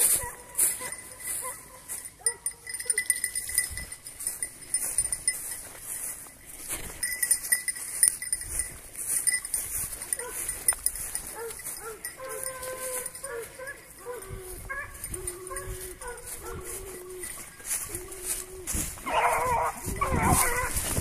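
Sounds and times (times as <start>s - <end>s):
hounds baying: 0.0s - 5.4s, 9.6s - 21.0s
collar bells jingling: 0.0s - 21.0s.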